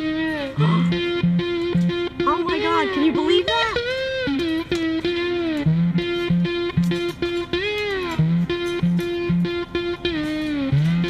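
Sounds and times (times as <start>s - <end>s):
electric guitar riff: 0.0s - 11.0s.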